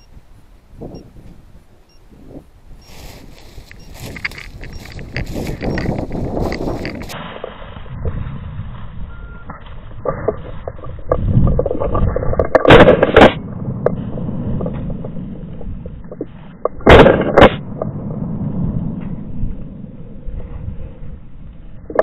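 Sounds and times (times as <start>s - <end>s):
footsteps rustling in dry leaves: 2.9s - 9.0s
shotgun blasts: 16.8s - 17.7s.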